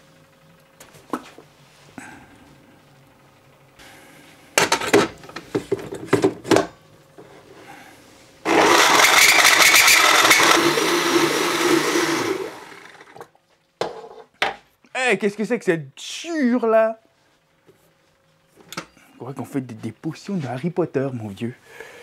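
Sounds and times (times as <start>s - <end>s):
electric blender whirring: 8.4s - 13.3s.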